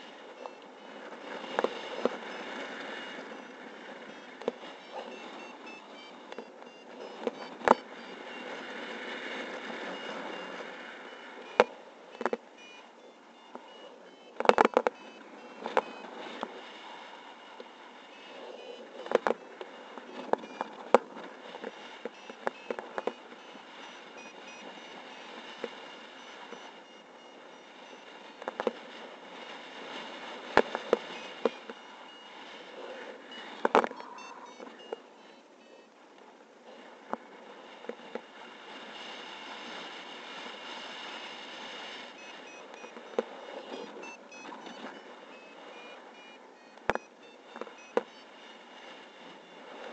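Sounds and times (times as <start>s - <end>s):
faint high beeps: 0.0s - 36.1s, 37.4s - 49.9s.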